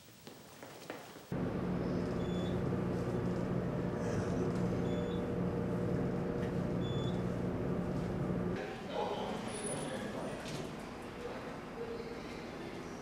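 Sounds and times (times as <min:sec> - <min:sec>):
elevator hum: 0:01.3 - 0:09.5.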